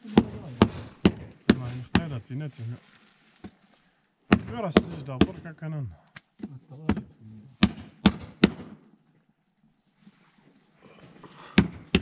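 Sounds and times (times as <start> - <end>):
hands slapping bread dough: 0.1 - 2.2, 11.5 - 12.0.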